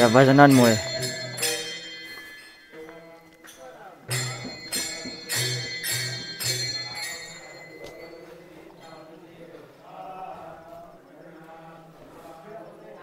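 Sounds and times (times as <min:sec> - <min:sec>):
ringing metallic strikes: 0:00.0 - 0:09.1
voices singing devotional song: 0:00.0 - 0:13.0.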